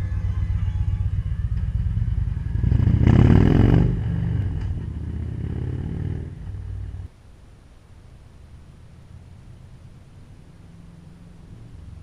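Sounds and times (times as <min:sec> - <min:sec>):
motorcycle accelerating away: 0:01.0 - 0:07.1, 0:10.5 - 0:12.0.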